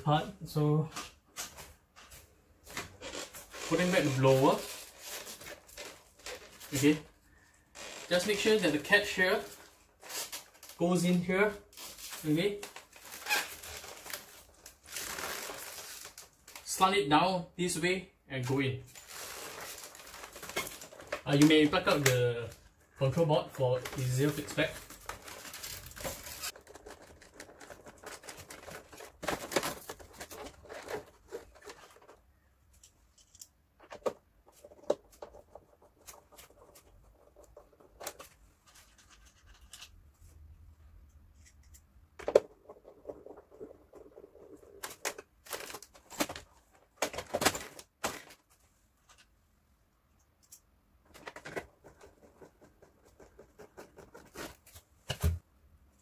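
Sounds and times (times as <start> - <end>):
plastic parts clicking and scraping: 18.9 - 22.8, 23.7 - 40.1, 41.1 - 49.3, 50.1 - 55.3.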